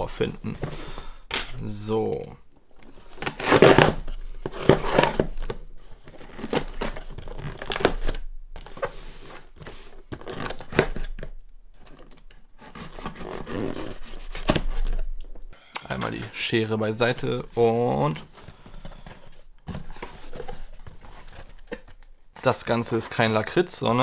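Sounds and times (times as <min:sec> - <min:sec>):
cardboard rustling: 0:02.8 - 0:24.0
packing tape being cut and torn: 0:03.1 - 0:08.1, 0:12.6 - 0:15.0.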